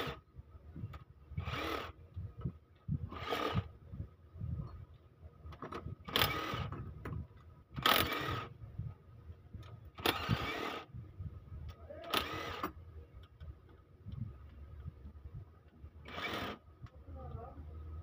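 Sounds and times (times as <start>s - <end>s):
battery-powered wrench bursts: 1.4s - 2.0s, 3.1s - 3.7s, 6.0s - 6.8s, 7.8s - 8.5s, 10.0s - 10.9s, 12.0s - 12.8s, 16.0s - 16.6s.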